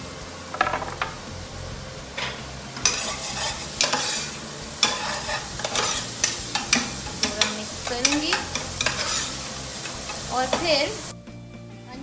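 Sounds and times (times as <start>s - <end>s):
onions sizzling in hot oil: 0.0s - 11.2s
spatula scraping pot: 2.8s - 11.1s.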